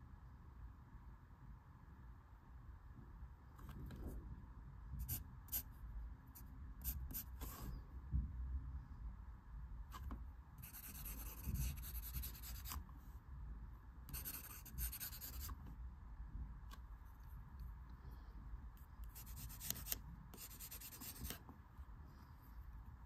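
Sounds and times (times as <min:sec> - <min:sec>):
pencil scratching on paper: 0:10.6 - 0:12.8, 0:14.1 - 0:15.6, 0:19.0 - 0:21.4.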